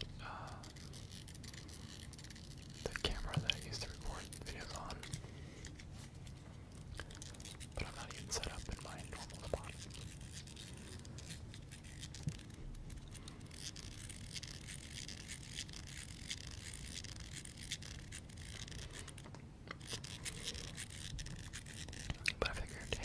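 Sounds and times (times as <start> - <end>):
scratchy rubbing: 0.0 - 23.0
fidget cube clicking: 6.8 - 23.0.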